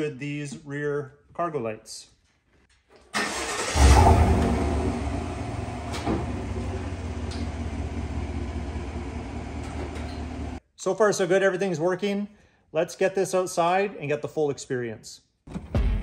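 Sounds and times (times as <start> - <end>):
truck engine starting and idling: 3.1 - 10.6
click: 7.2 - 7.6.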